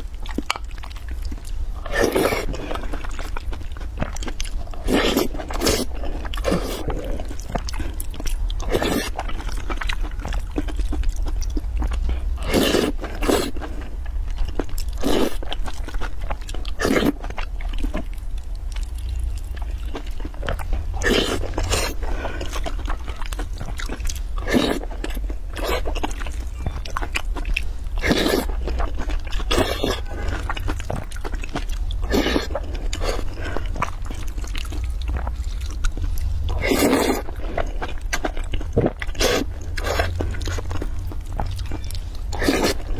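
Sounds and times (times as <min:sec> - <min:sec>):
close chewing and biting: 0:00.0 - 0:42.9
steady low hum: 0:00.0 - 0:42.9.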